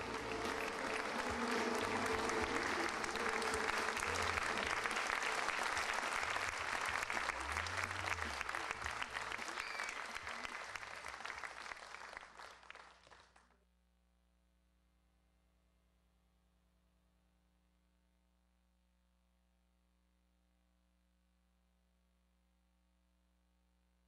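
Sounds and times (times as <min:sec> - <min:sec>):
audience applauding: 0:00.0 - 0:13.4.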